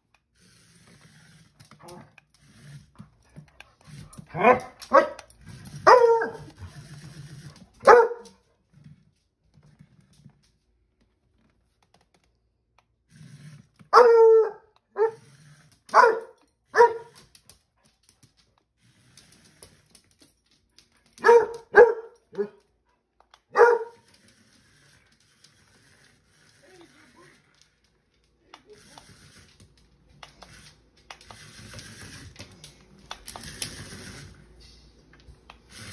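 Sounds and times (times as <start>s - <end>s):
puppy barking: 5.8s - 6.5s, 7.8s - 8.4s, 13.9s - 15.2s, 15.9s - 17.2s, 21.2s - 22.6s, 23.5s - 24.0s.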